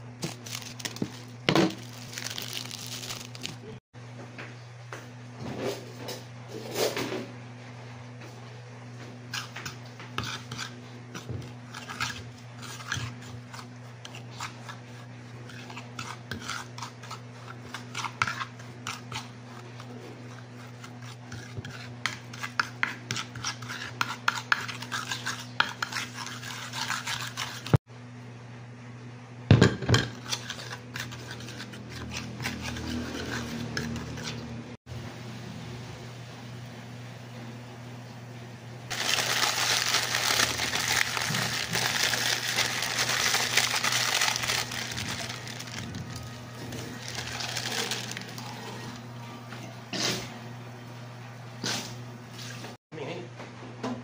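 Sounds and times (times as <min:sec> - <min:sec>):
metal spoon scraping ceramic plate: 0:30.0 - 0:34.5.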